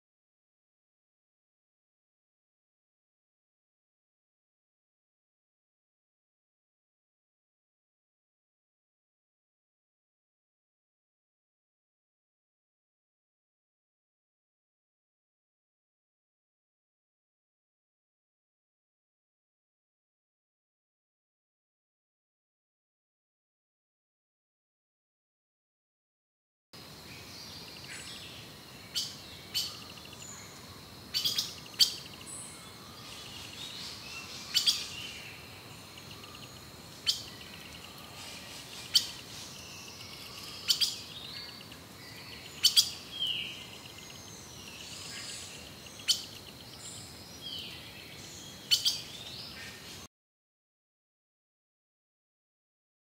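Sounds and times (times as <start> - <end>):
birds chirping: 26.8 - 50.1
soft hiss: 26.8 - 50.1
slurred bird calls: 28.9 - 47.4, 48.5 - 50.1.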